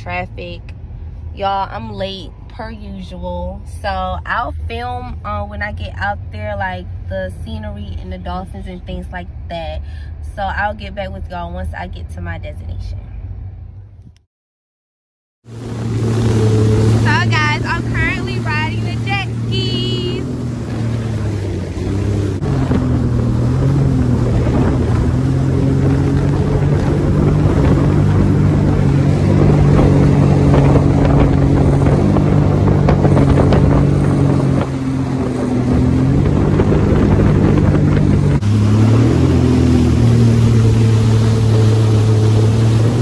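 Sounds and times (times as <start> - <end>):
jet ski engine droning: 15.5 - 43.0
rushing water: 15.5 - 43.0
wind on microphone: 15.6 - 43.0.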